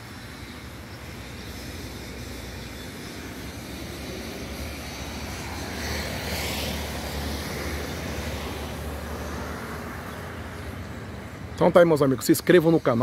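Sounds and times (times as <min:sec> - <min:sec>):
road traffic rumble: 0:00.0 - 0:13.0
vehicle passing: 0:03.3 - 0:11.9.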